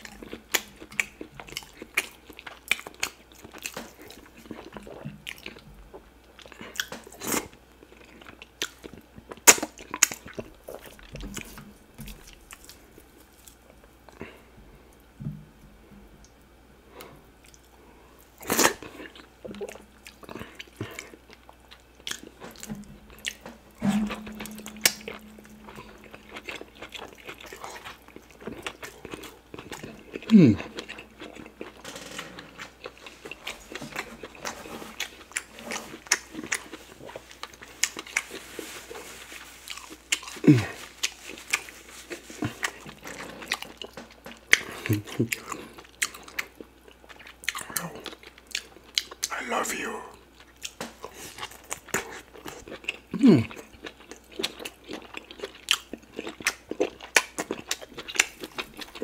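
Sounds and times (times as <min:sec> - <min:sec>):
chewing and mouth smacks: 0:00.0 - 0:05.7, 0:06.4 - 0:14.3, 0:18.4 - 0:23.6, 0:24.2 - 0:31.8, 0:39.7 - 0:49.4, 0:50.4 - 0:59.0
low steady hum: 0:00.0 - 0:59.0.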